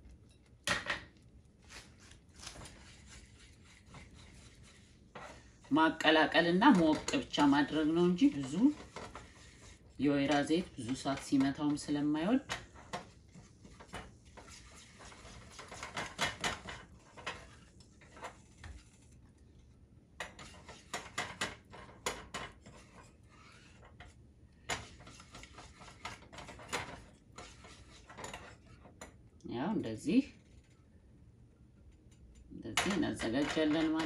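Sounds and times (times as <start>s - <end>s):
spatula scraping a saucepan: 1.7s - 19.2s, 20.2s - 29.2s.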